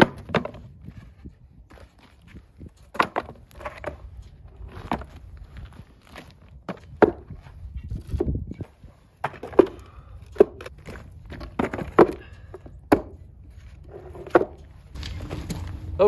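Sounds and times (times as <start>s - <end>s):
footsteps on gravel: 0.6s - 16.0s
blocks knocking on wooden boards: 12.9s - 13.2s.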